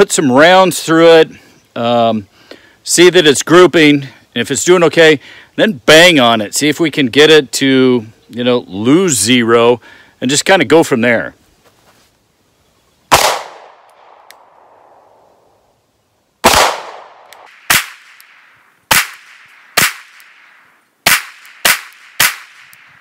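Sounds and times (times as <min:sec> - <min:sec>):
pistol shots with echo: 0:13.1 - 0:14.7, 0:16.4 - 0:20.4, 0:21.0 - 0:22.8.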